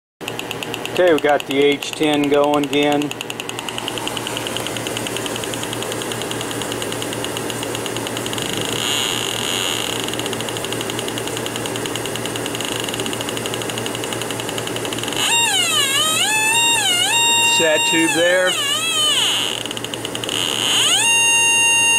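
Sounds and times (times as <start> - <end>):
rapid electronic ticking: 0.2 - 21.9
loud wavering electronic squeal: 8.3 - 10.2, 15.0 - 21.9.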